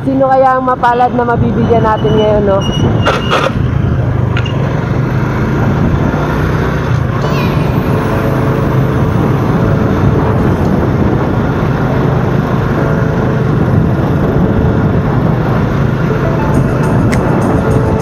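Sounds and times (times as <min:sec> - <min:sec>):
road noise: 0:00.0 - 0:18.0
motorcycle engine running: 0:03.5 - 0:18.0
wind rushing: 0:05.5 - 0:18.0.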